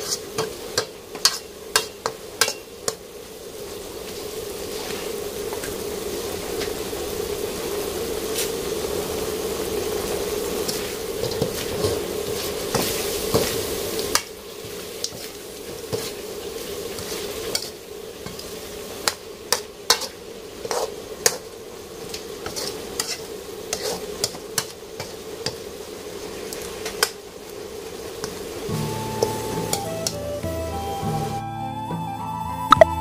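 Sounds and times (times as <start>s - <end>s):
ladle scraping a wok: 0.0s - 3.1s, 10.1s - 30.3s
food sizzling in a wok: 0.0s - 31.6s.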